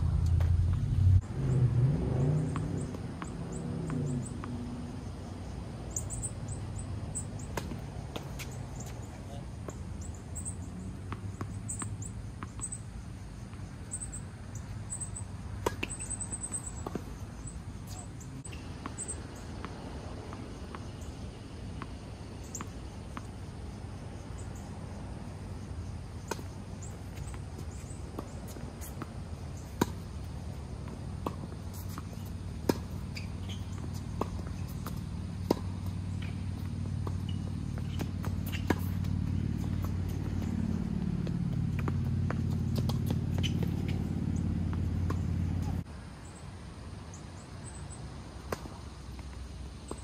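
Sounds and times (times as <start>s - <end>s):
low steady rumble: 0.0s - 8.1s, 29.0s - 45.9s.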